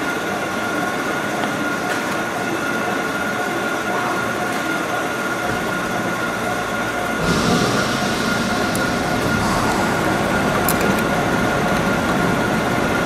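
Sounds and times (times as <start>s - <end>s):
machine hiss: 6.7s - 13.0s
thin high whine: 7.2s - 13.0s.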